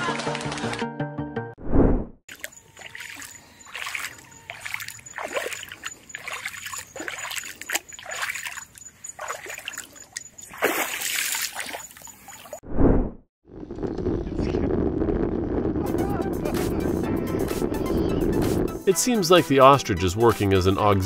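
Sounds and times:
water splashing: 0:02.3 - 0:12.6
faint high-pitched tone: 0:02.4 - 0:08.6.

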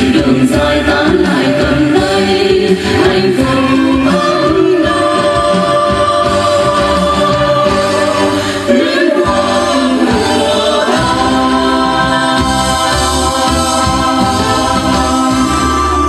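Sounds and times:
choir singing: 0:00.0 - 0:16.0
instrumental accompaniment: 0:00.0 - 0:16.0.

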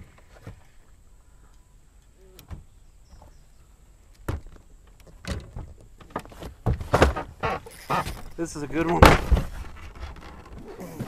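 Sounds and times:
knocks and clunks in a boat: 0:04.2 - 0:11.0.

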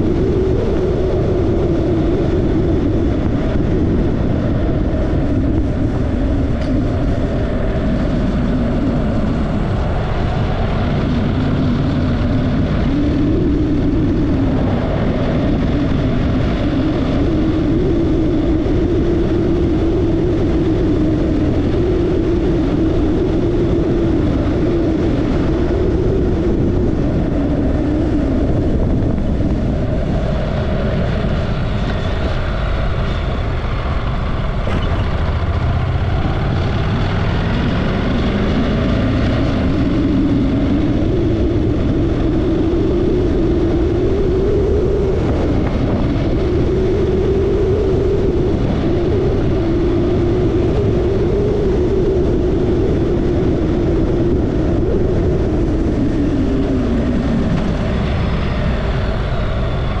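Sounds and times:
wind rushing: 0:00.0 - 1:00.0
motorcycle engine: 0:25.1 - 0:42.5.

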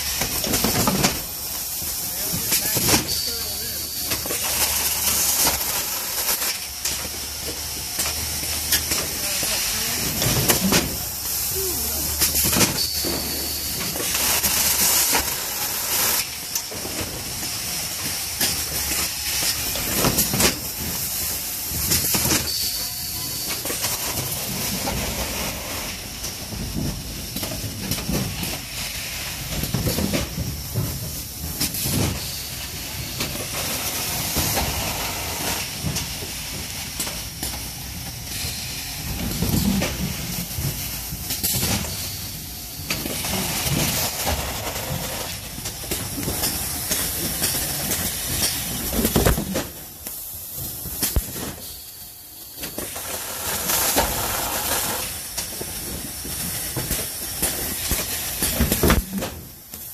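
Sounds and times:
compressed air hisses: 0:00.0 - 0:16.6
steady hiss: 0:00.0 - 0:59.9.

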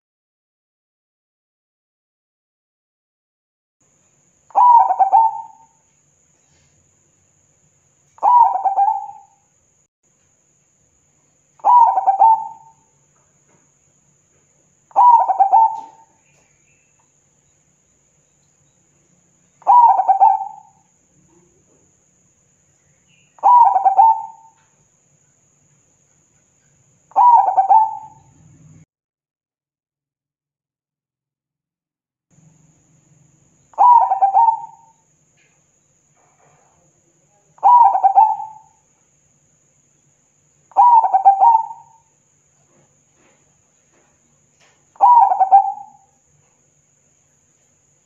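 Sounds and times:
dove cooing: 0:04.5 - 0:05.7, 0:08.2 - 0:09.4, 0:11.6 - 0:12.9, 0:14.9 - 0:16.5, 0:19.6 - 0:21.5, 0:23.4 - 0:24.6, 0:27.1 - 0:28.8, 0:33.8 - 0:35.0, 0:37.6 - 0:38.8, 0:40.7 - 0:42.0, 0:45.0 - 0:46.1.

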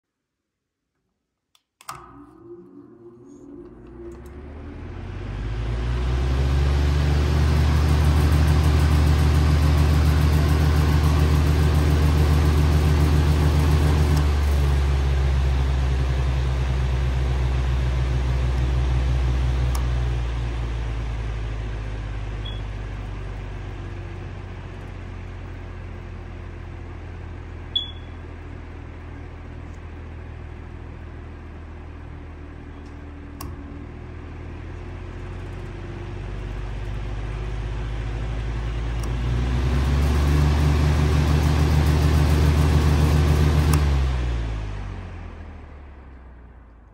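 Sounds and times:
sharp click: 0:01.6 - 0:02.3
fan motor humming with rushing air: 0:27.4 - 0:45.2.

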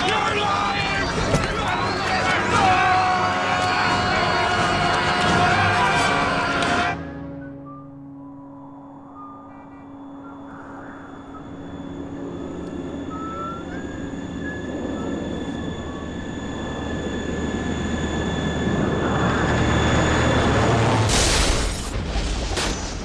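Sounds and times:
thin steady whine: 0:07.3 - 0:21.1
jet airliner engine rushing: 0:10.0 - 0:22.1.

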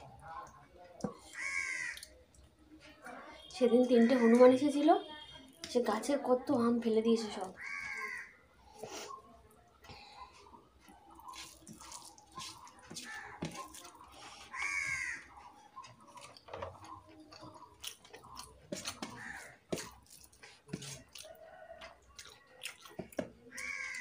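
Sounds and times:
wet chewing: 0:00.0 - 0:02.6, 0:07.3 - 0:24.0
food squished by hand in bowl: 0:09.7 - 0:24.0.

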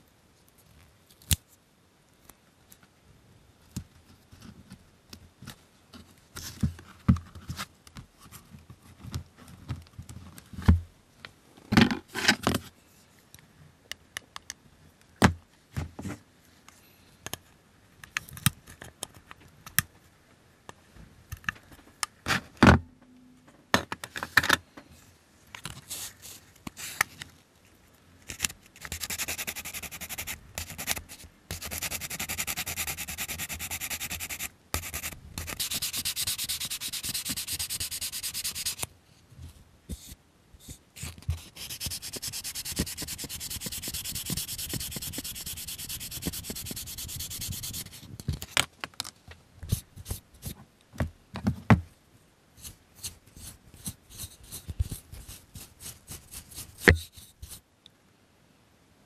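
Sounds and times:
sandpaper rubbing on plastic: 0:28.8 - 0:38.8, 0:41.0 - 0:48.1, 0:52.6 - 0:57.6
short scrapes and taps: 0:56.5 - 0:57.6.

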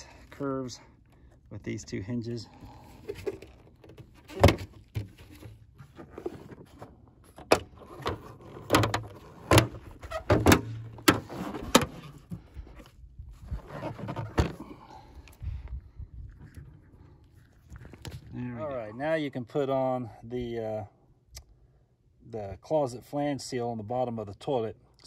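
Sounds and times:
handling rustle: 0:02.2 - 0:14.8.

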